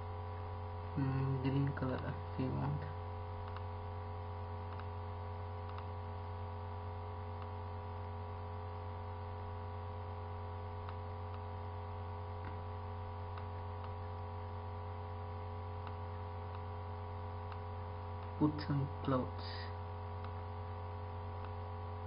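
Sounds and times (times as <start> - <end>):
electrical mains hum: 0.0 - 22.0
faint computer mouse clicks: 3.4 - 3.7, 4.7 - 4.9, 5.6 - 5.9, 10.8 - 11.5, 20.2 - 20.4.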